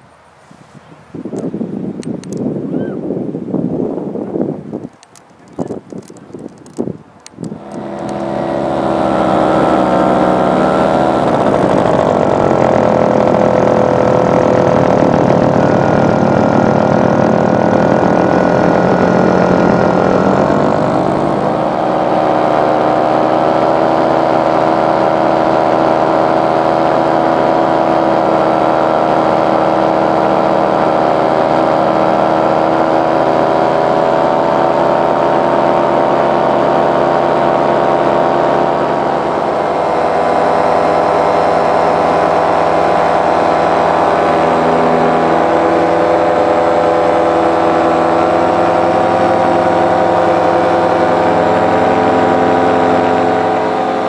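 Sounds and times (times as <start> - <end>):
paramotor engine and propeller drone: 0.0 - 54.0.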